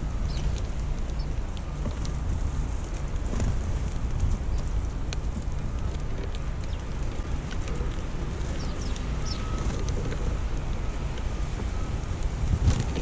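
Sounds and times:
sparrows chirping: 0.0s - 1.4s, 5.9s - 10.6s
wind buffeting microphone: 0.0s - 13.0s.

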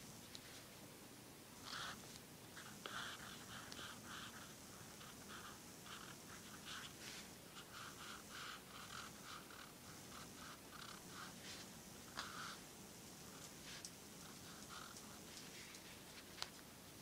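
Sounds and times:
pen scratching on paper: 2.6s - 12.6s.

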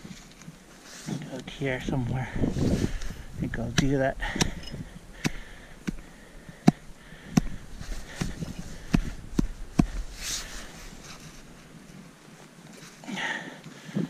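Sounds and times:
scraping rustle: 0.0s - 3.7s, 7.6s - 13.1s
axe chopping meat: 3.7s - 4.6s, 6.6s - 10.0s.

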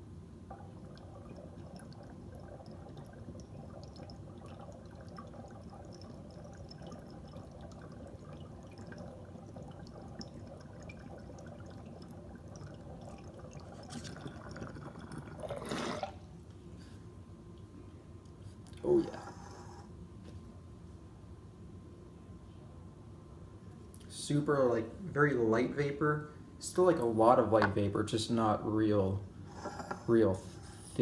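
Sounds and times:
water bubbling and gurgling: 0.5s - 16.2s.

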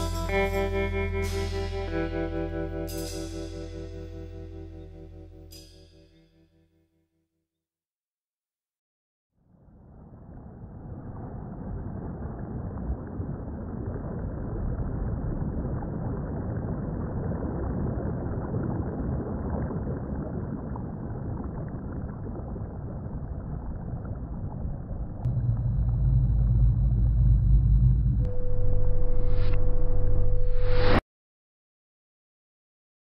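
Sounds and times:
muffled rumbling noise: 9.7s - 31.0s
deep low drone: 23.6s - 31.0s.

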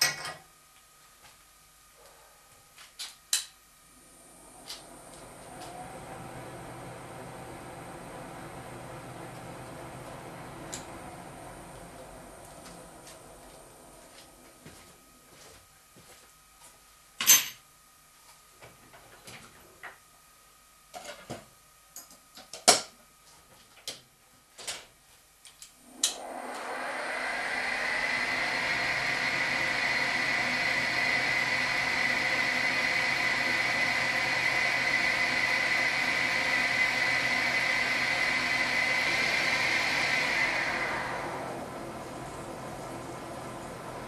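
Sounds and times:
steady high whine: 3.7s - 15.3s, 25.8s - 44.0s.

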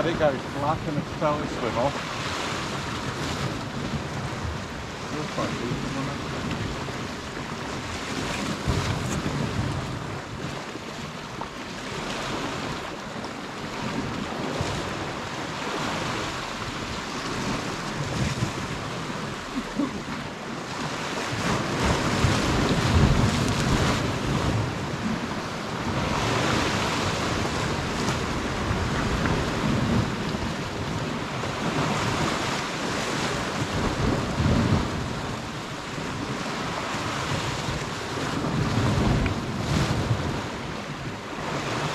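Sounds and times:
wind gusting on microphone: 0.0s - 11.2s, 13.7s - 41.9s
sea water washing at shore: 0.0s - 41.9s.

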